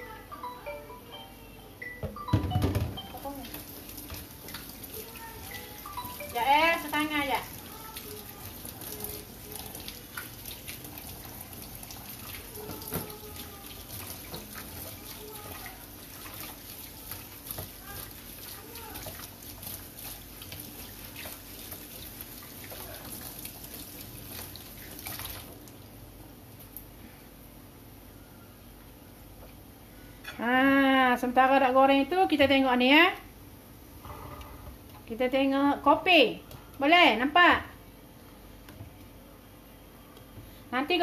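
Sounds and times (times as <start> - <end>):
deep-frying sizzle: 2.2 - 27.0.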